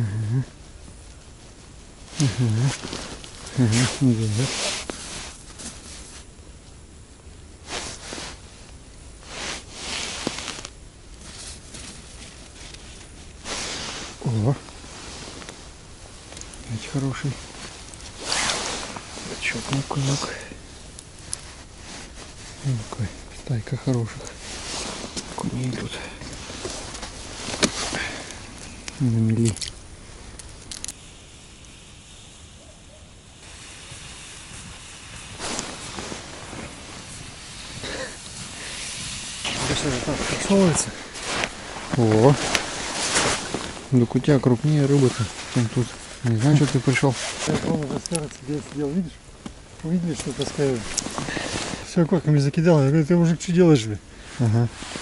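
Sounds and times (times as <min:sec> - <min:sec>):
snow crunching: 0:01.3 - 0:06.4, 0:07.6 - 0:29.6, 0:33.4 - 0:49.2, 0:49.8 - 0:55.0
clothing rustling: 0:02.1 - 0:06.3, 0:09.2 - 0:20.4, 0:21.2 - 0:28.6, 0:35.4 - 0:38.7, 0:39.4 - 0:44.1, 0:44.7 - 0:49.1, 0:49.9 - 0:52.0, 0:54.2 - 0:55.0.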